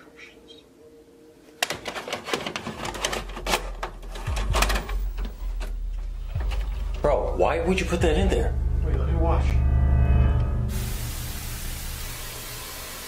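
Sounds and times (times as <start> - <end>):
tape mechanism clicks and clatter: 1.6 - 5.4
low hum: 3.2 - 12.9.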